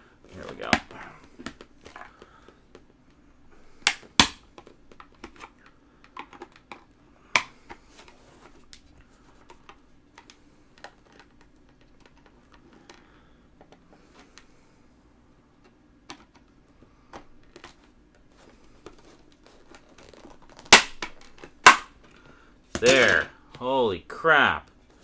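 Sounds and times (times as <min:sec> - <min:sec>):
loud plastic cracks: 0:20.0 - 0:22.0.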